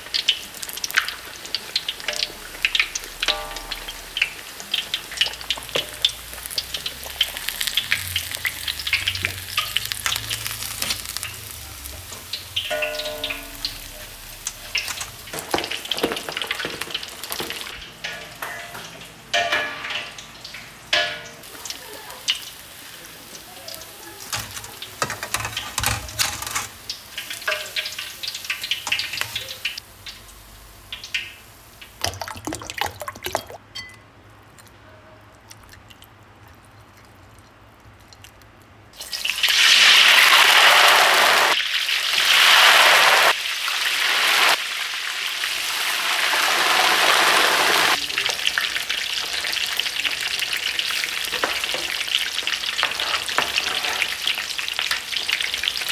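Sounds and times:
meat sizzling in hot oil: 0:00.0 - 0:32.1, 0:38.9 - 0:55.9
tongs and ladle knocking wok: 0:00.9 - 0:11.3, 0:11.9 - 0:21.4, 0:24.3 - 0:28.2, 0:28.8 - 0:29.7, 0:51.2 - 0:55.4.

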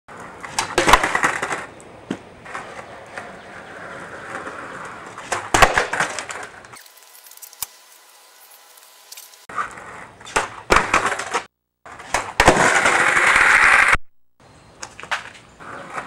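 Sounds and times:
skateboard wheels rolling: 0:00.1 - 0:07.2, 0:09.3 - 0:14.0, 0:14.8 - 0:16.0
skateboard clacking on concrete: 0:00.2 - 0:06.8, 0:14.8 - 0:16.0.

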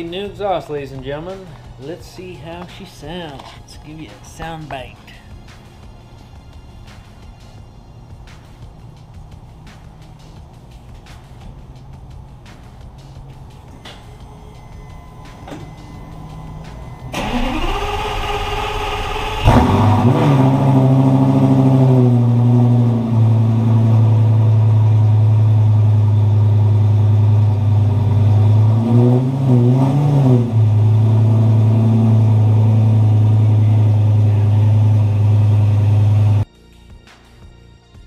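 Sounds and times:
sports car engine idling: 0:00.0 - 0:36.4
engine throttle blips: 0:11.0 - 0:36.4.

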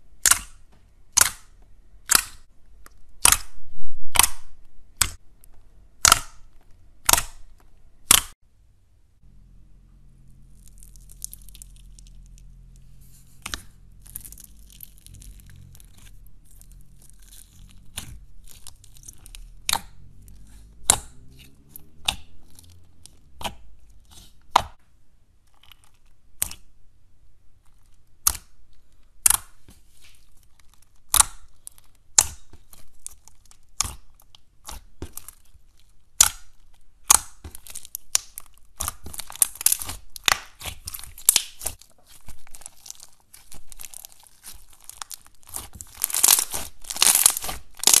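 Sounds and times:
slime crackling: 0:10.2 - 0:24.8, 0:27.6 - 0:48.0.

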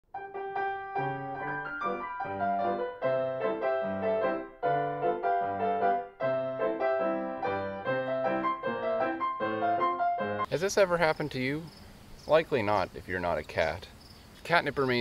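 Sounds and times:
piano music: 0:00.1 - 0:10.5.

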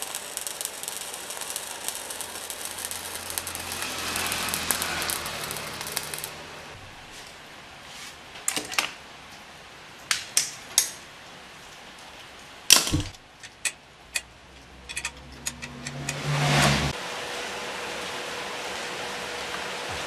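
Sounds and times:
welding arc crackle: 0:00.0 - 0:07.4
metal parts and tools clicking: 0:12.7 - 0:16.3.

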